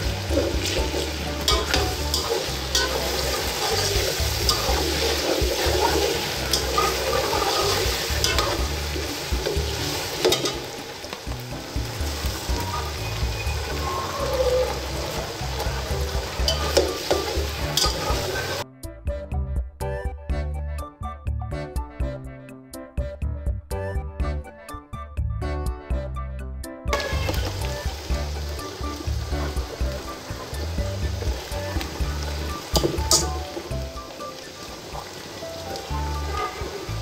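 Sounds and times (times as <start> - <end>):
metal turner scraping a pot: 0.0 - 10.7, 16.4 - 18.6, 32.8 - 33.4
potatoes sizzling in oil: 0.0 - 18.6, 27.0 - 37.0
background music: 0.0 - 37.0.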